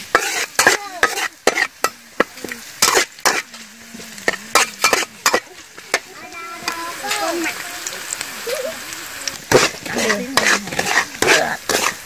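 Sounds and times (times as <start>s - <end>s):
spatula scraping metal wok: 0.0s - 7.6s, 9.3s - 12.0s
light sizzle: 0.0s - 12.0s.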